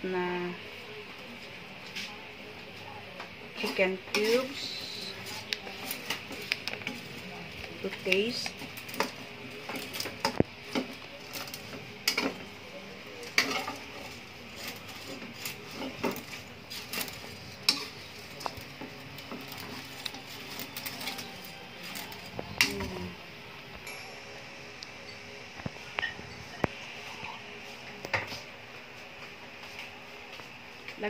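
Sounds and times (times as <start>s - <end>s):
metal spatula scraping wok: 3.6s - 7.1s, 13.2s - 22.8s.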